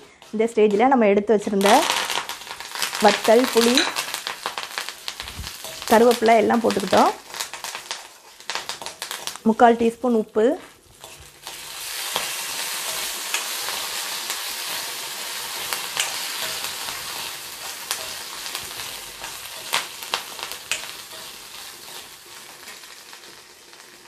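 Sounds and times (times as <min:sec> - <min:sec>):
spices sizzling in hot oil: 0:00.0 - 0:24.0
metal ladle scraping pan: 0:01.6 - 0:09.4, 0:10.6 - 0:22.1.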